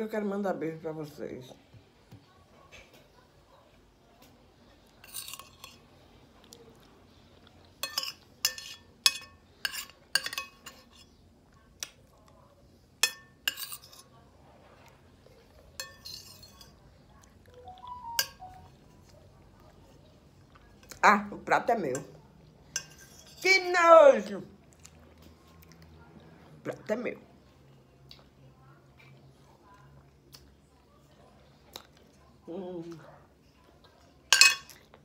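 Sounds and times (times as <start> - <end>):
spoon clinking against glass bowl: 7.8 - 11.0, 13.0 - 14.1, 15.8 - 16.8, 17.6 - 18.7, 34.3 - 34.8.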